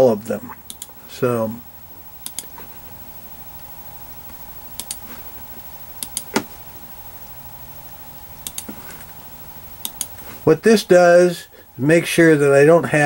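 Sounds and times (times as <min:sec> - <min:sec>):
computer mouse clicks: 0:00.7 - 0:00.9, 0:02.2 - 0:02.5, 0:04.8 - 0:05.0, 0:06.0 - 0:06.5, 0:08.4 - 0:08.8, 0:09.8 - 0:10.2.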